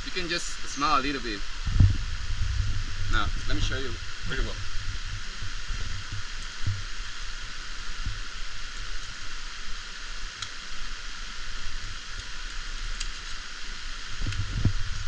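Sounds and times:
rainforest hiss: 0.0s - 15.0s
microphone rumble: 1.2s - 8.4s, 14.1s - 15.0s
faint ticks: 10.3s - 10.6s, 12.1s - 13.5s.

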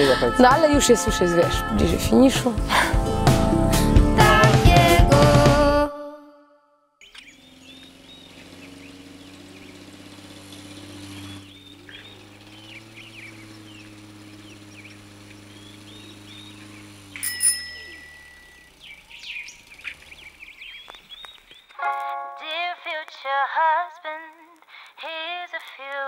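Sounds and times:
small birds chirping: 7.0s - 22.1s
bell-like ring: 17.2s - 18.7s.

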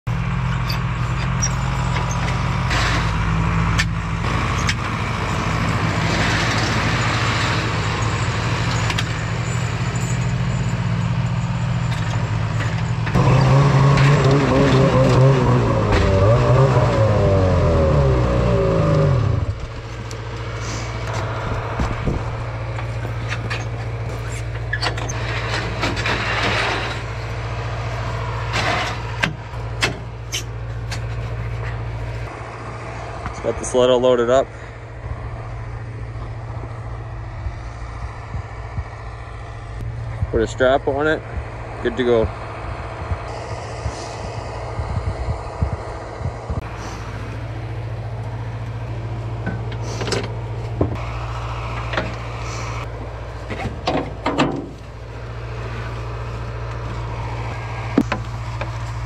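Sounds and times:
engines idling: 0.0s - 59.0s
low engine hum: 0.0s - 59.0s
snowmobile engine revving: 13.1s - 19.8s
knocks and clanks from ramp: 53.5s - 54.8s.

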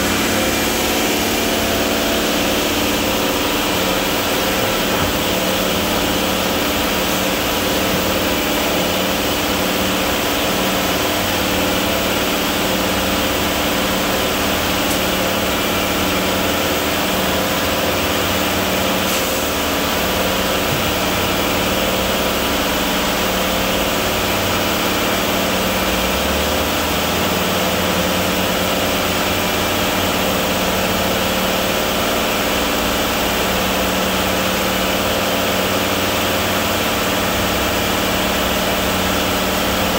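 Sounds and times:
concrete mixer drum turning: 0.0s - 26.3s
diesel truck engine running: 0.0s - 39.9s.

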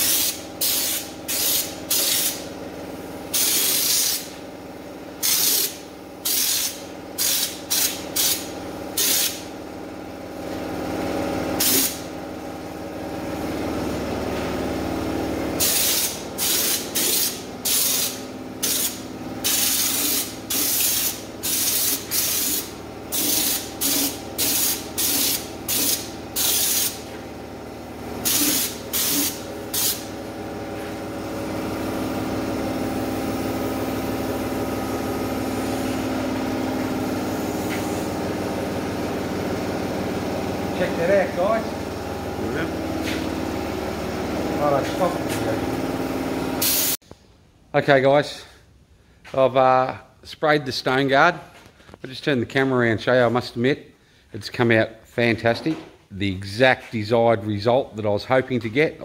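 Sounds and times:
spray gun hissing bursts: 0.0s - 4.4s, 5.2s - 9.5s, 11.6s - 12.1s, 15.6s - 27.1s, 28.2s - 32.2s, 32.8s - 39.8s, 46.0s - 47.0s.

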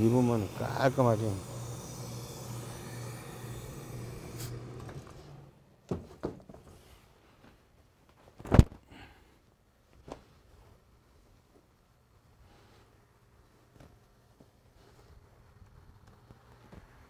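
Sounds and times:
steam iron hum and hiss: 0.0s - 5.6s.

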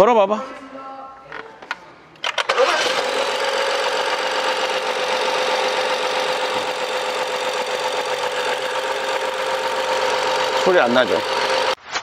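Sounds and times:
car engine idling: 3.0s - 11.8s.

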